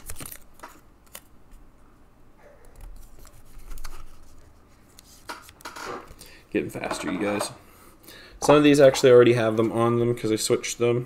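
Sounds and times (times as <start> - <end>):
cards rustling: 0.0 - 1.3, 2.8 - 6.2.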